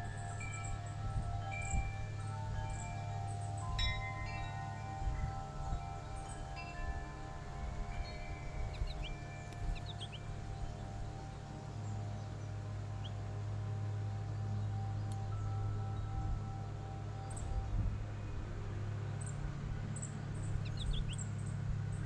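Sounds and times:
small birds chirping: 0.0 - 13.4, 19.0 - 22.0
steady low hum: 0.0 - 22.0
wind chimes ringing: 0.0 - 22.0.

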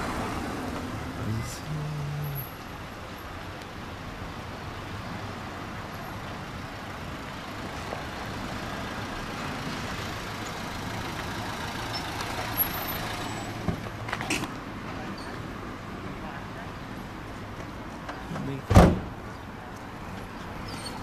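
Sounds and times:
tyre and street noise: 0.0 - 21.0.

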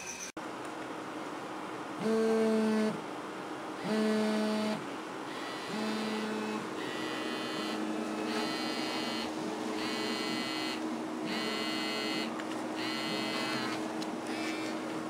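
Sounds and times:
steady low hum: 0.4 - 15.0
electronic phone ringtone: 5.3 - 13.8.

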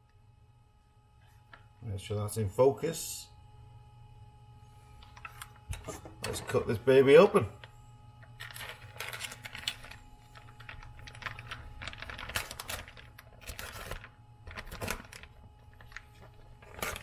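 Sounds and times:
steady low hum: 0.0 - 17.0
plastic bag rustling and clicks: 7.6 - 17.0.

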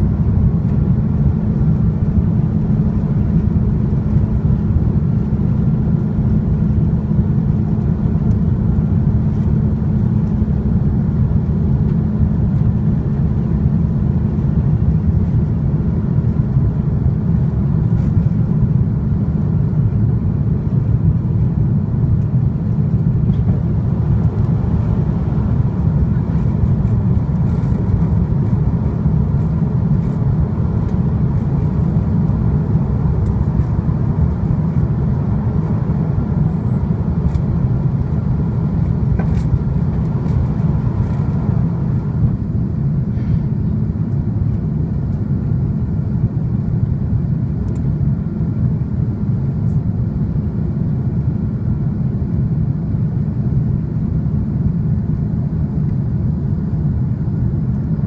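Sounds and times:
jet engines roaring: 0.0 - 46.2.

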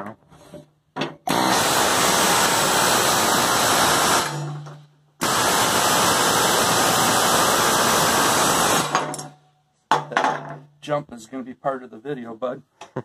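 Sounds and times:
impact wrench running: 1.3 - 9.3.

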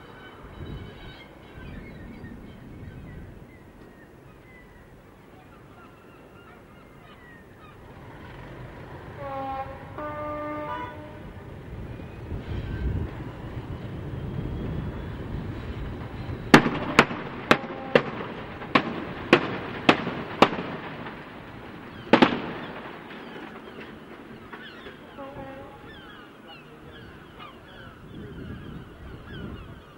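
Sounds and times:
train horn: 0.0 - 1.8, 9.1 - 11.4, 16.6 - 18.3, 25.0 - 26.1
locomotives running: 7.4 - 28.0
railway detonators exploding: 16.0 - 25.0.

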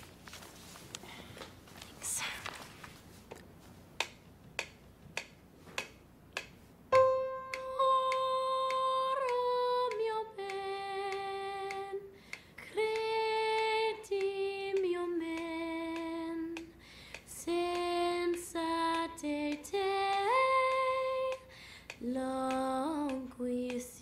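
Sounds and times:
metronome ticking: 4.0 - 23.9
woman singing held notes: 7.5 - 24.0.

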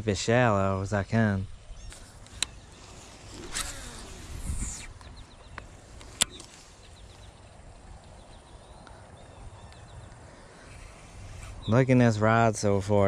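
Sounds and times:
reel click: 1.9 - 6.5
fishing rod whoosh and line running: 1.9 - 7.2, 10.4 - 11.7.

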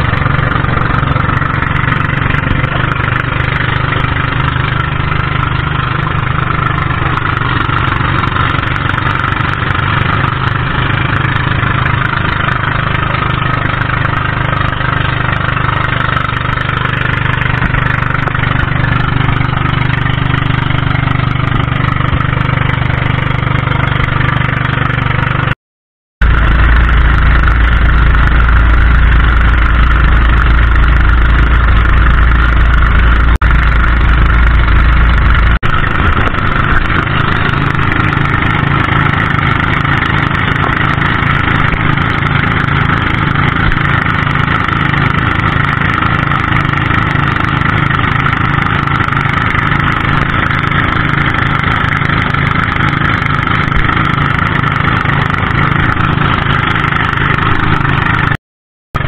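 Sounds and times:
boat engine running: 0.0 - 25.6, 26.2 - 58.4
wind rumbling on microphone: 26.2 - 58.4.

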